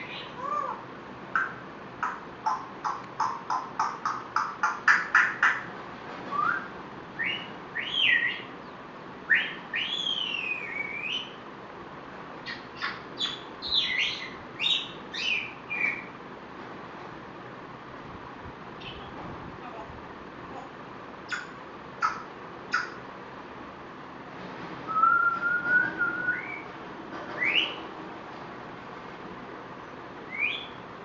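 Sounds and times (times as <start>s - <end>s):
parrot whistling and chirping: 6.3s - 8.5s, 9.3s - 11.4s, 12.4s - 16.1s, 24.9s - 26.7s, 27.4s - 27.8s, 30.3s - 30.8s.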